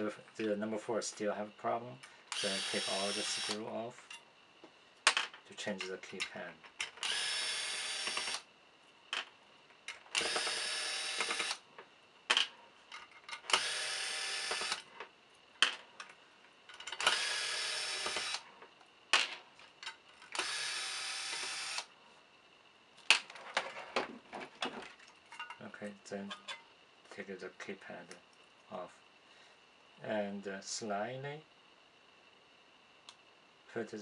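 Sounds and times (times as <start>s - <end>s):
electric screwdriver running: 2.4s - 3.6s, 7.0s - 8.4s, 10.1s - 11.6s, 13.5s - 14.8s, 17.0s - 18.4s, 20.4s - 21.9s.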